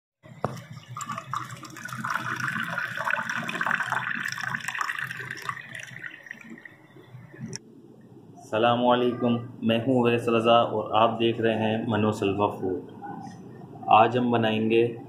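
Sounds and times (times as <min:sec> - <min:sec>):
juice pouring into a glass: 0:00.5 - 0:06.8.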